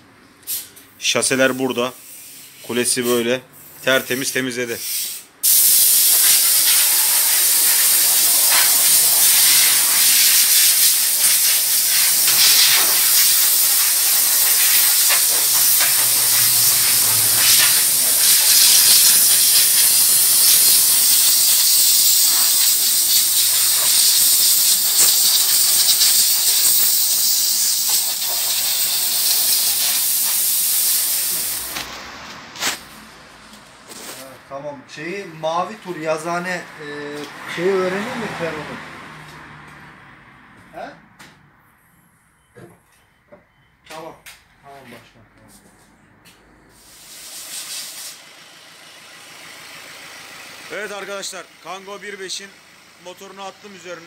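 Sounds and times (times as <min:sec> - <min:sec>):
steam washer hissing: 0:04.8 - 0:32.0, 0:46.8 - 0:48.3.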